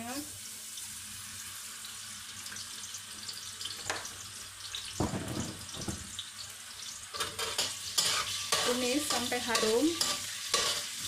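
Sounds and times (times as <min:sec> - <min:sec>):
oil sizzling in a wok: 0:00.0 - 0:11.0
dull knocks: 0:05.0 - 0:06.1.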